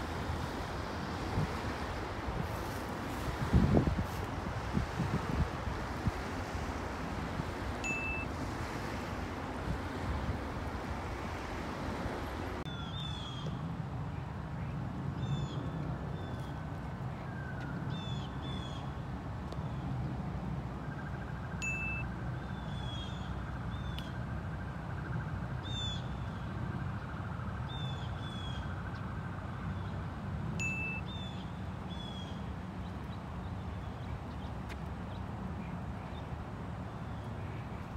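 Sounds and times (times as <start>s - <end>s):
water lapping on shore: 0.0s - 12.7s
wind buffeting microphone: 0.0s - 12.7s.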